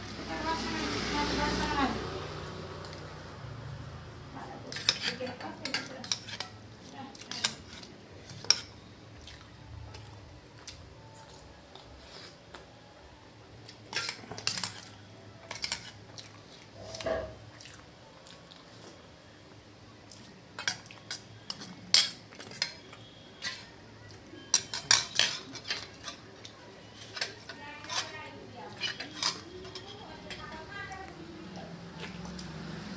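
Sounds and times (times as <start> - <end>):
spoon clinking against steel bowls: 4.6 - 8.8, 13.8 - 16.0, 20.6 - 31.0.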